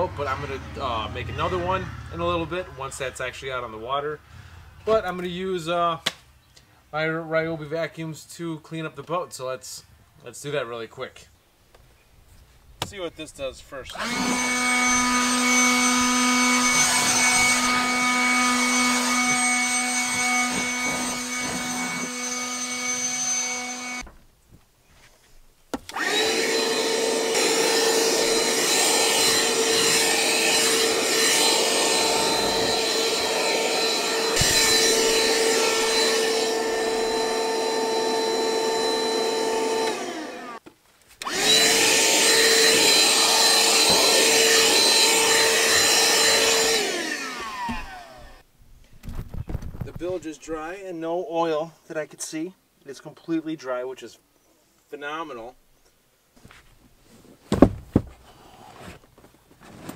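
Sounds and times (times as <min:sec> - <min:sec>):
handheld vacuum whining: 0:13.9 - 0:24.0, 0:25.8 - 0:40.6, 0:41.2 - 0:48.4
stick vacuum humming: 0:13.9 - 0:24.0, 0:25.8 - 0:40.6, 0:41.2 - 0:48.4.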